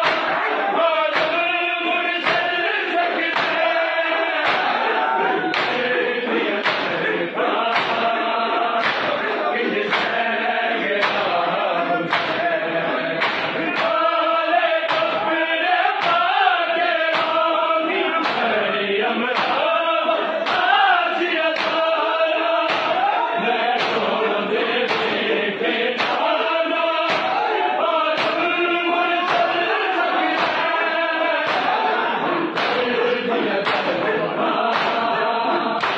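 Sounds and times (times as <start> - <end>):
hands slapping bare chests: 0.0 - 0.4, 1.1 - 1.4, 2.2 - 2.5, 3.2 - 3.7, 4.4 - 4.8, 5.5 - 5.9, 6.6 - 7.0, 7.7 - 8.1, 8.8 - 9.2, 9.9 - 10.2, 11.0 - 11.4, 12.1 - 12.4, 13.2 - 14.0, 14.9 - 15.2, 16.0 - 16.2, 17.1 - 17.4, 18.2 - 18.5, 19.4 - 19.6, 20.4 - 20.7, 21.6 - 21.9, 22.6 - 23.1, 23.8 - 24.1, 24.9 - 25.2, 26.0 - 26.3, 27.0 - 27.4, 28.2 - 28.4, 29.2 - 29.6, 30.3 - 30.8, 31.4 - 31.9, 32.5 - 32.9, 33.6 - 34.0, 34.7 - 35.1
men chanting in unison: 0.0 - 35.9.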